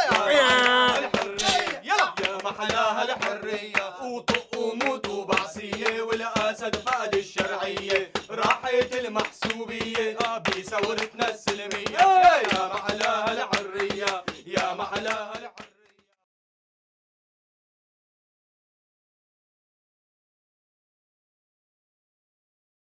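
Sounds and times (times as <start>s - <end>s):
men chanting in unison: 0.0s - 15.8s
rhythmic hand-clapping: 0.0s - 16.2s.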